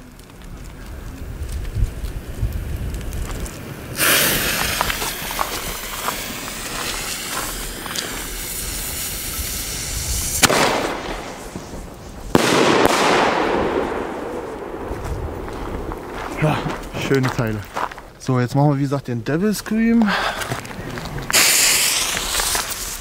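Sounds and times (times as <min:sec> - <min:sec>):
firework fizzing hiss: 0:01.2 - 0:16.2, 0:21.3 - 0:23.0
firework burst: 0:03.7 - 0:16.2, 0:21.3 - 0:23.0
firework bang: 0:03.9 - 0:16.3, 0:21.3 - 0:23.0.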